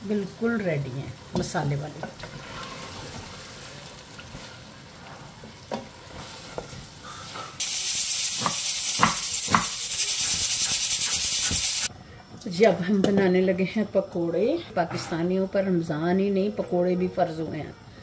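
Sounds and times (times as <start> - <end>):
faint sizzle: 0.0 - 11.0
pressure cooker loud hiss: 7.0 - 11.9.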